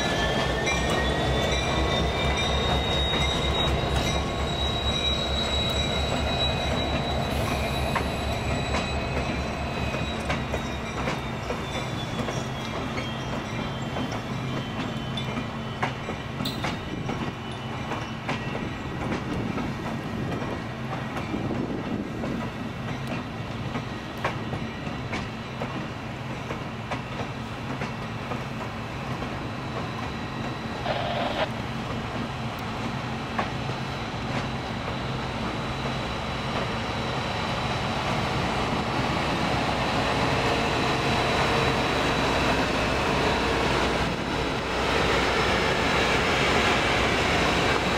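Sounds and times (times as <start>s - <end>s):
high wheel squeal: 0.0s - 18.9s, 29.4s - 31.5s
train wheels clicking over rail joints: 0.0s - 30.7s.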